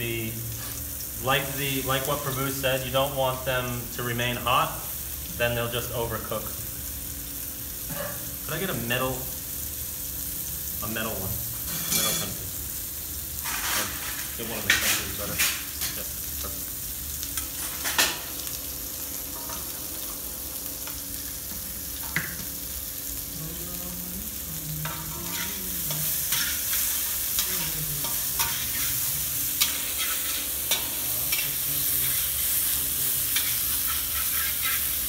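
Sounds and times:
potatoes sizzling in hot fat: 0.0 - 35.0
metal spatula scraping pan: 11.7 - 12.3, 13.4 - 15.9, 24.8 - 32.6, 33.3 - 35.0.

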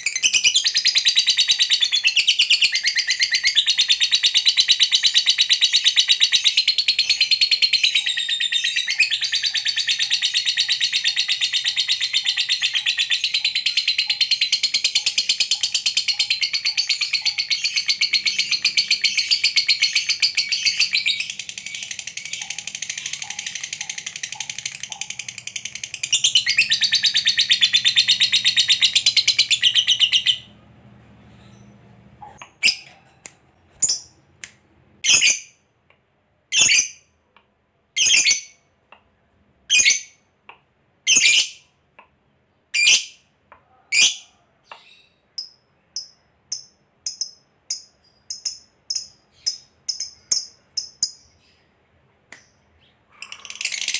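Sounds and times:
bird chattering trill: 6.9 - 30.5, 53.1 - 53.9.

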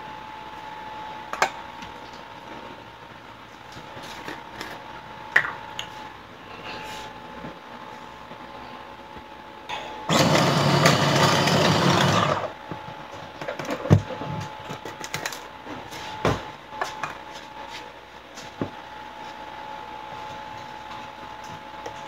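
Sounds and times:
electric food chopper running: 10.1 - 12.6.

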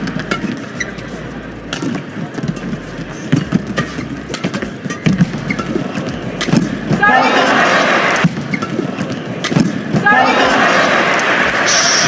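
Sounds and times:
rackets hitting shuttlecock: 0.0 - 7.0, 8.0 - 10.1
crowd hum: 0.0 - 12.0.

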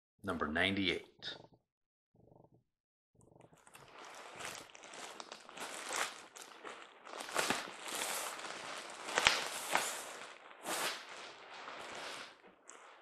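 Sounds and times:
plastic wrap crinkling: 3.6 - 13.0.

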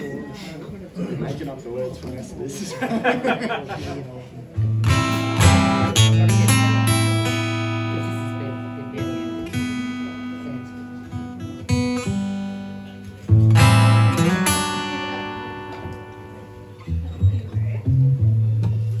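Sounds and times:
acoustic guitar strumming chords: 4.6 - 19.0.

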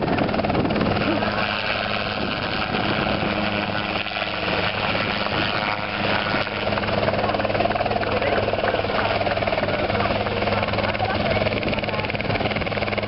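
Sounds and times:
helicopter engine hum: 0.0 - 13.0
helicopter rotor beating: 0.0 - 13.0.

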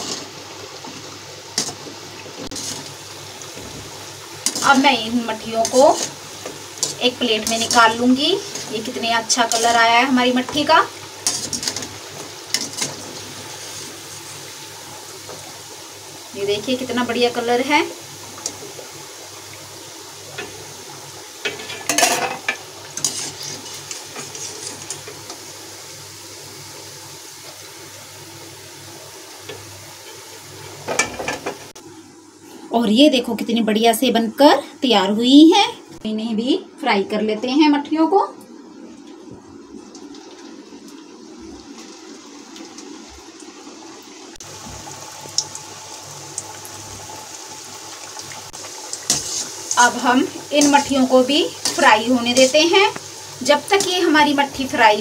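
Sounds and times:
deep-frying sizzle in hot oil: 0.0 - 55.0
wire skimmer scraping a pan: 1.6 - 3.0, 3.6 - 14.0, 21.5 - 25.2, 49.0 - 53.0.

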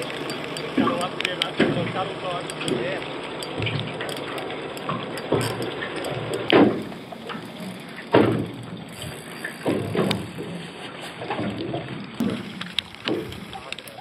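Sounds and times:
small waves slapping boat hull: 0.0 - 14.0
steady hiss: 12.2 - 14.0.

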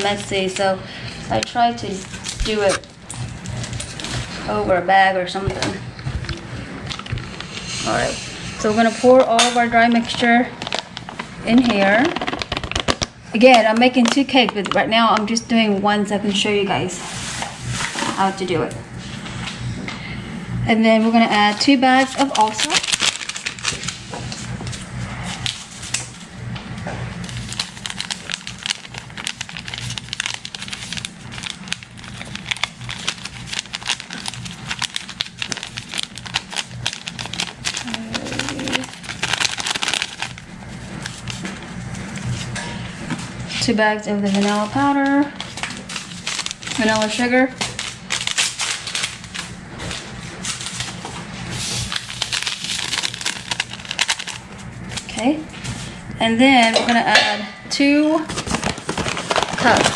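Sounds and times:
paper sachets crinkling: 9.8 - 13.1, 21.9 - 24.1, 27.2 - 41.4, 44.2 - 56.0, 58.3 - 59.9.

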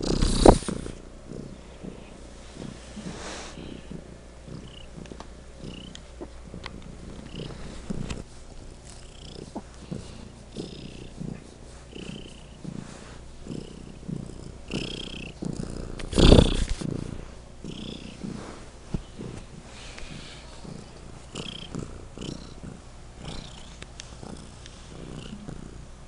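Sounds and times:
cat purring: 0.0 - 26.0.

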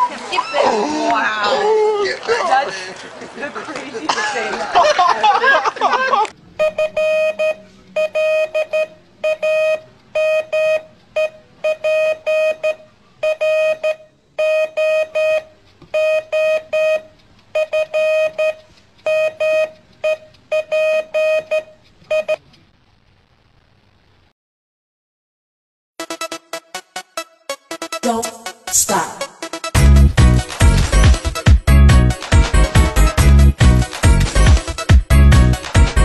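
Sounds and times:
electronic alarm beeping: 6.6 - 22.4.

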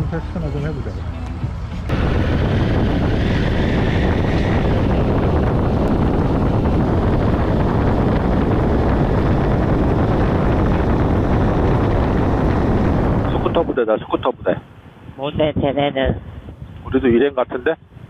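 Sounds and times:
wind buffeting microphone: 1.9 - 18.0.

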